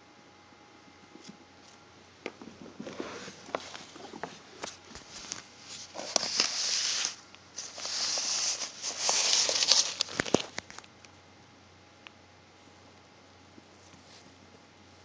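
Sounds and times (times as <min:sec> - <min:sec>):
newspaper rustling and crinkling: 0:02.8 - 0:10.9.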